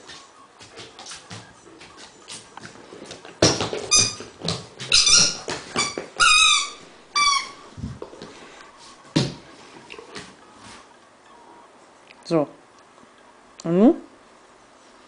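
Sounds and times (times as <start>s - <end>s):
rubber squeaky ball squeaking: 3.4s - 7.8s.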